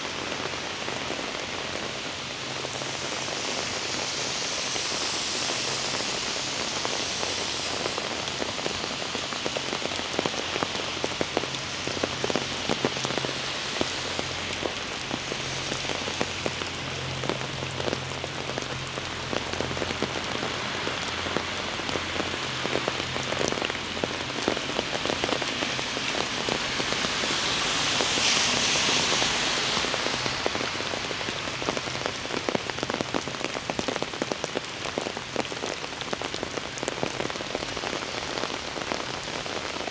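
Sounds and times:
heavy rain falling: 0.0s - 39.9s
raindrops ticking: 7.7s - 28.2s.

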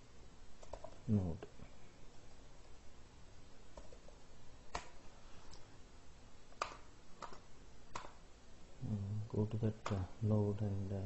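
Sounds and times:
mouse and keyboard clicks: 0.6s - 1.0s, 6.6s - 8.2s.

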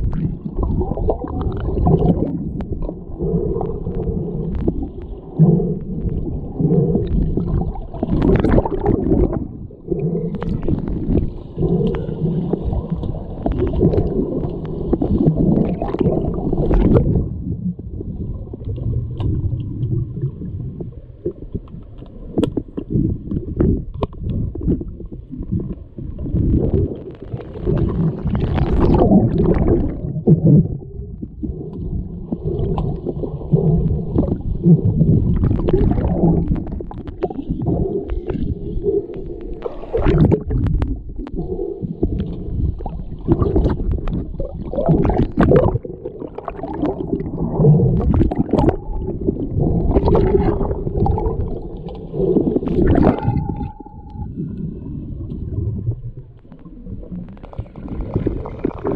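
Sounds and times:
muffled underwater churning rumble: 0.0s - 58.9s
swimmers' bubbles: 0.0s - 58.9s
sharp underwater clicks and knocks: 20.8s - 25.2s, 35.0s - 47.2s.

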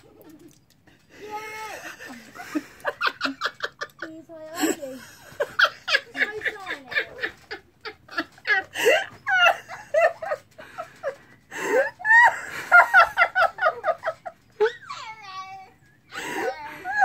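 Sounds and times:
woman laughing hard: 1.7s - 14.9s, 16.1s - 17.0s.

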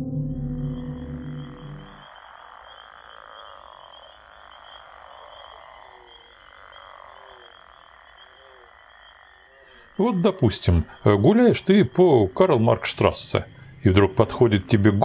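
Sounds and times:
steady high trill: 0.0s - 2.0s
short croaking calls: 0.7s - 15.0s.

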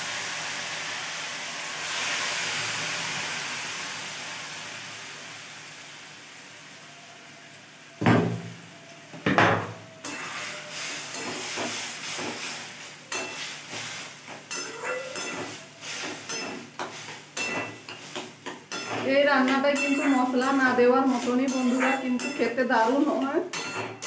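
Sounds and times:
curry sizzling: 0.0s - 24.0s
metal spatula clanking on pan: 13.1s - 22.6s, 23.4s - 24.0s.

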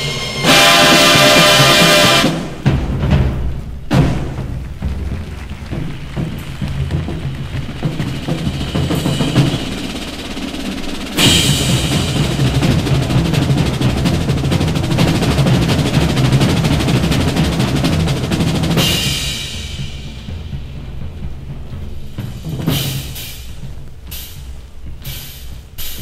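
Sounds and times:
drum-driven music: 0.0s - 26.0s
rapid drum roll: 0.0s - 26.0s.

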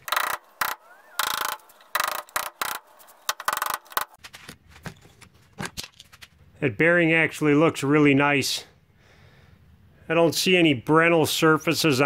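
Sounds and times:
screwdriver scraping metal: 0.0s - 4.2s.

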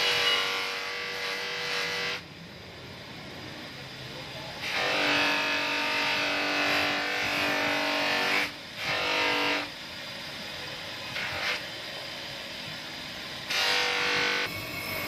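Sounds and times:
knife blade on buffing wheel: 13.5s - 15.0s
spinning buffing wheel: 14.4s - 15.0s.

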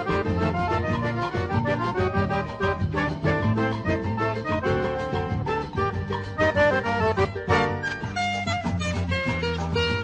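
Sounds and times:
accordion melody: 0.0s - 10.0s
band playing steady beat: 0.0s - 10.0s.

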